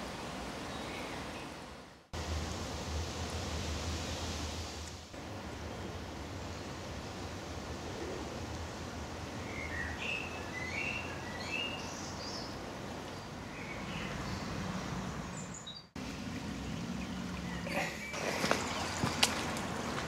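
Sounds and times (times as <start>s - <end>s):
birds chirping: 9.3s - 20.0s
stream flowing over stones: 16.0s - 20.0s
water trickling and dripping: 16.0s - 20.0s.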